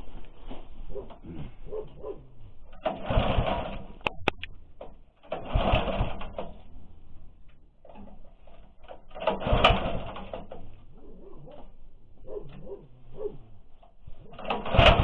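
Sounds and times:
engine turning over: 2.5s - 12.8s, 13.6s - 15.0s
recoil starter rope pulled: 2.5s - 12.8s, 13.6s - 15.0s.

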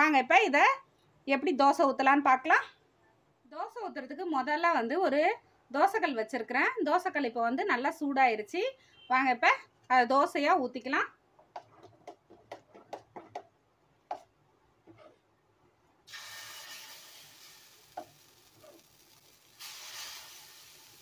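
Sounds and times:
batter sizzling on hot griddle: 16.0s - 21.0s.

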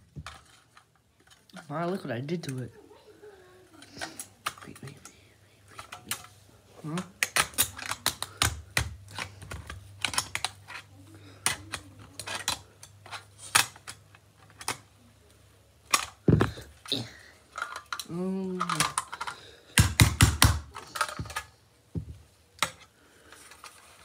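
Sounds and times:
screwdriver scraping toy car: 11.5s - 14.6s.

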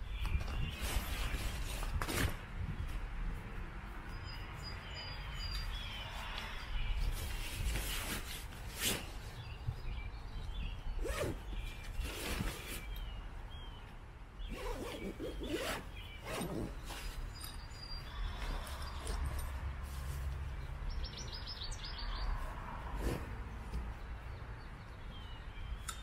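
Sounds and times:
wind on microphone: 0.0s - 3.8s.

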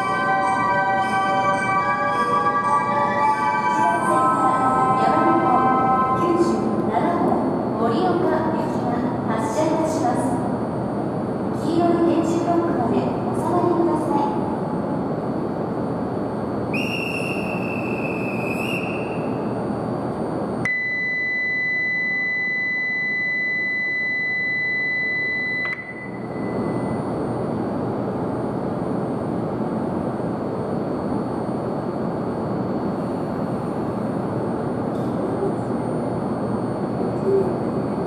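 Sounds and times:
platform whistle blast: 16.7s - 19.4s
high electronic departure tone: 20.0s - 27.3s.

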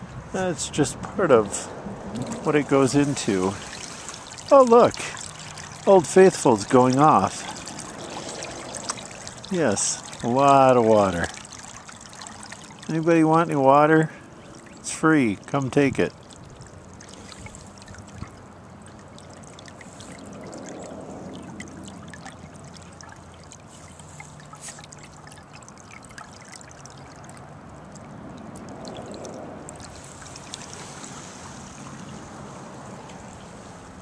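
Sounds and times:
water trickling from a pipe: 0.0s - 34.0s.

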